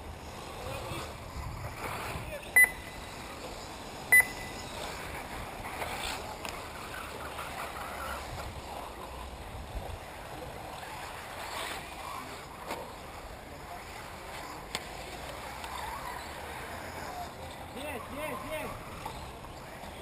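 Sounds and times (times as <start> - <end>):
steady low background noise: 0.0 - 20.0
short electronic beeps: 2.6 - 3.0, 4.1 - 4.7.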